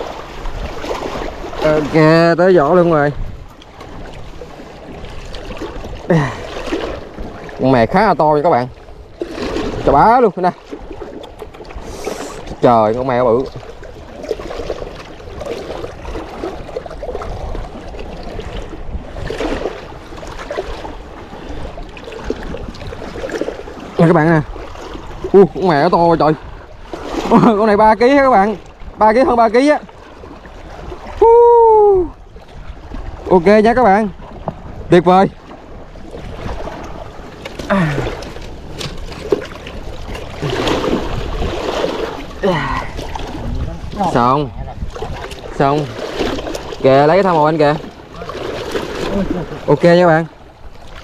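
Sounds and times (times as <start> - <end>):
water lapping on rocky shore: 0.0 - 51.0
wind rumbling on microphone: 0.0 - 51.0
person grunting: 37.7 - 38.2, 42.4 - 43.0.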